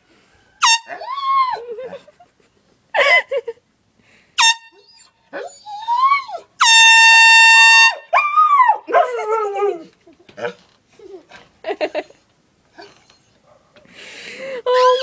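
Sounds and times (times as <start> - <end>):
air horn blasts: 4.4 - 4.8, 6.6 - 8.0.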